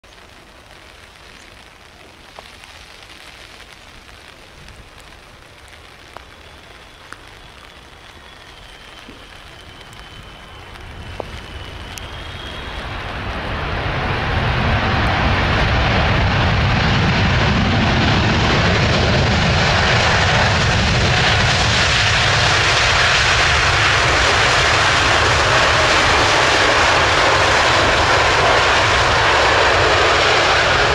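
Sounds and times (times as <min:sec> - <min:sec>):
jet engine whine: 0:05.8 - 0:30.9
loud jet engine noise: 0:06.2 - 0:30.9.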